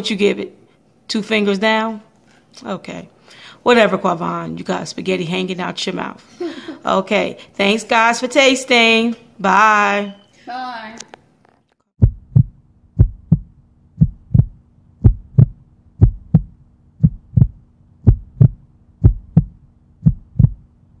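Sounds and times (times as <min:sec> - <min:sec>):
heartbeat double thump: 0:12.0 - 0:20.7
faint low hum: 0:12.0 - 0:21.0.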